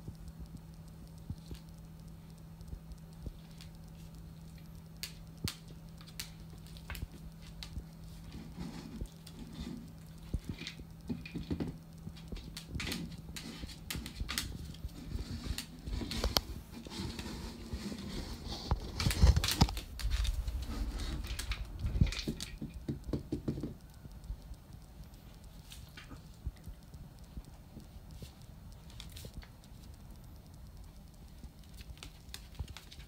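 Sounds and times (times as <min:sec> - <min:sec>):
dog claws clicking on tiles: 0:03.1 - 0:24.5, 0:31.0 - 0:33.0.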